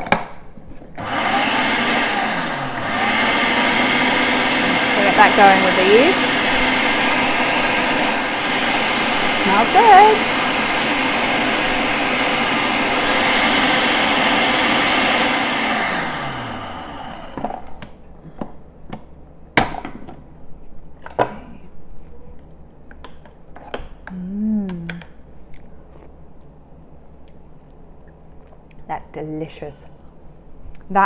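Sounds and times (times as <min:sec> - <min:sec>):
food processor running: 0:01.0 - 0:17.8.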